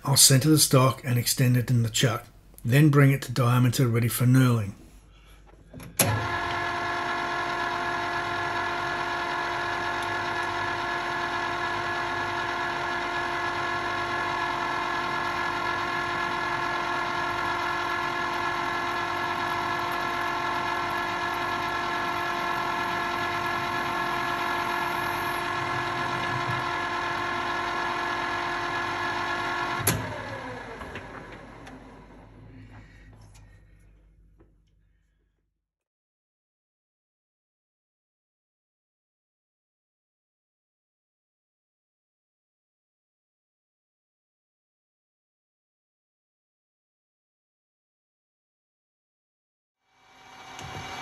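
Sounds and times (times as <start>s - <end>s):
metal lathe whining: 6.0s - 32.4s, 50.0s - 51.0s.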